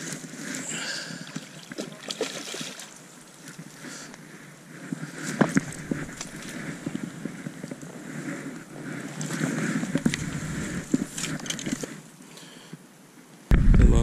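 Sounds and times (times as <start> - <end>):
rustling through brush: 1.3 - 12.2.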